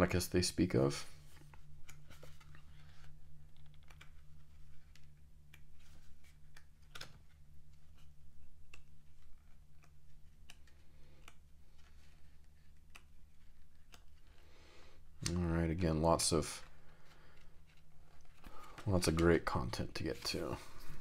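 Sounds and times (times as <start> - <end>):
paper snap: 6.5 - 7.2.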